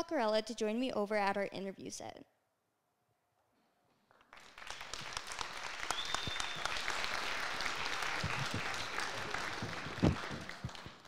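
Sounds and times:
audience applauding: 0:04.3 - 0:11.0
high whistle: 0:05.8 - 0:06.8.

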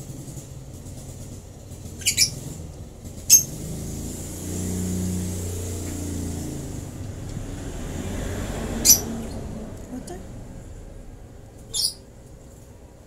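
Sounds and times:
bird chicks squeaking: 0:02.0 - 0:02.6, 0:03.3 - 0:03.6, 0:08.8 - 0:09.2, 0:11.6 - 0:12.1
low steady hum: 0:09.0 - 0:13.0.

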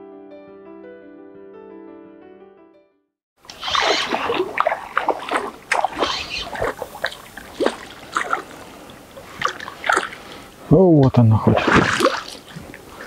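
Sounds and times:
fish splashing in water: 0:03.4 - 0:10.6, 0:11.5 - 0:13.0.

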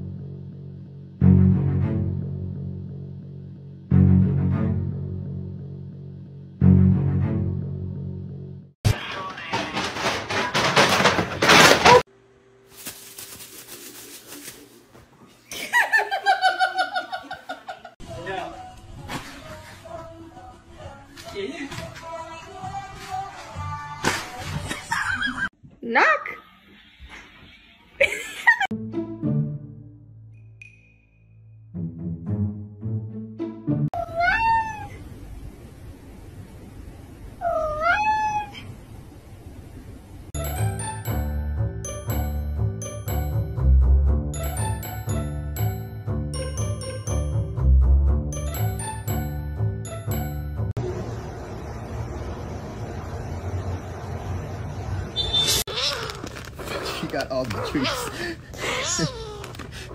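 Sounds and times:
cat meowing: 0:34.0 - 0:35.0, 0:37.4 - 0:38.7
person laughing high-pitched: 0:57.8 - 0:59.5.

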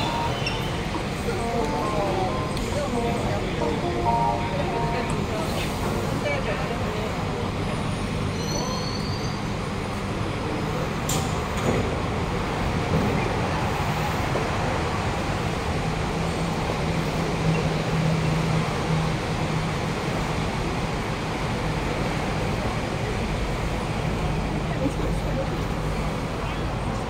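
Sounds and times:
faint passenger voices: 0:00.0 - 0:15.8, 0:16.6 - 0:27.0
crowded platform noise: 0:00.0 - 0:27.0.

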